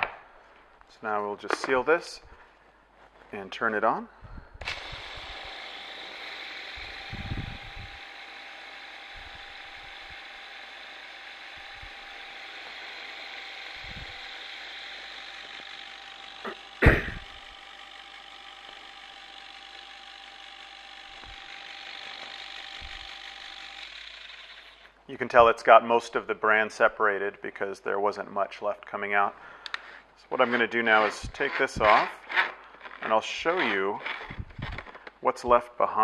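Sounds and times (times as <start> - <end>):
flour sifter motor humming: 4.6 - 24.9
sharp knock: 16.8 - 17.2.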